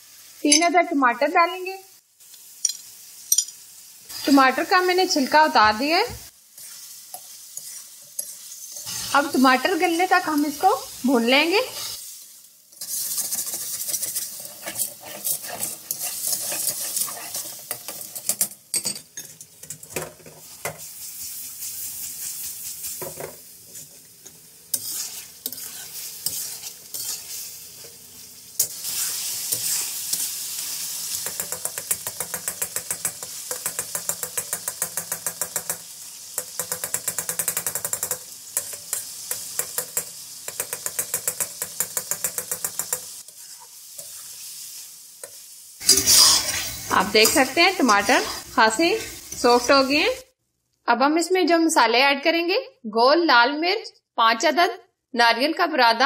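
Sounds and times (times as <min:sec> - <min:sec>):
food sizzling in hot oil: 0:00.0 - 0:50.4
spatula scraping a pan: 0:06.5 - 0:09.4, 0:11.6 - 0:18.5, 0:19.2 - 0:28.0, 0:28.6 - 0:35.4, 0:36.7 - 0:49.8.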